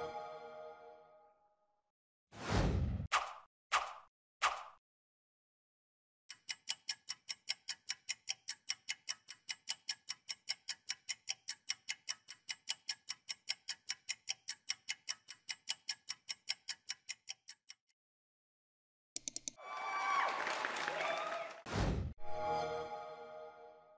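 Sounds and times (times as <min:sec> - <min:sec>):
clock ticking: 0:06.3 - 0:17.9, 0:19.2 - 0:19.6.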